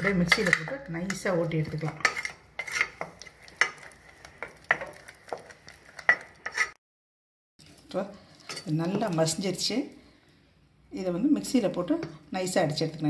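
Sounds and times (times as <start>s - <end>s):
spatula striking pot: 0.0s - 1.3s, 1.9s - 6.7s
spatula mashing in pot: 0.0s - 6.8s.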